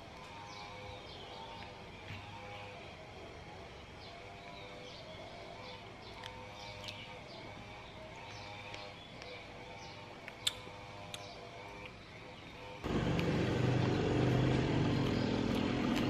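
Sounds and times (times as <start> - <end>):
motor vehicle engine rumble: 12.8 - 16.0.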